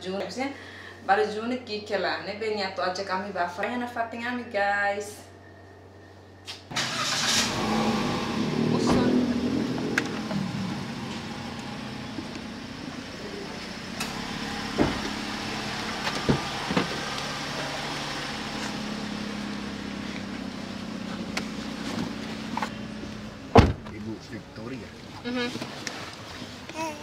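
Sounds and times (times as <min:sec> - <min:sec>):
car engine idling: 0:06.7 - 0:25.5
loud thump: 0:23.5 - 0:23.9.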